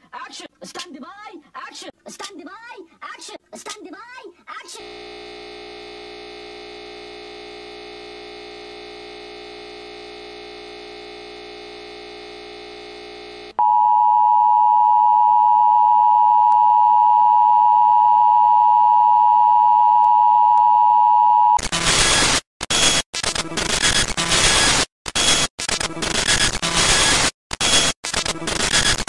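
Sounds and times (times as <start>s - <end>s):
static noise: 4.8s - 13.6s, 21.6s - 29.0s
pure tone: 4.8s - 21.6s.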